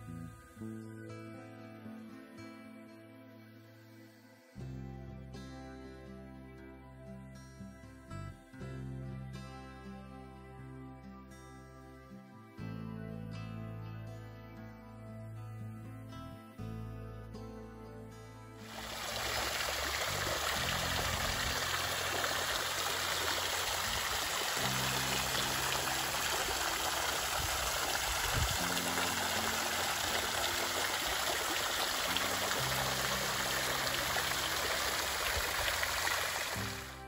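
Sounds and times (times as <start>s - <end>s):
soft background music: 0.0s - 37.0s
fountain water splashing: 18.6s - 37.0s.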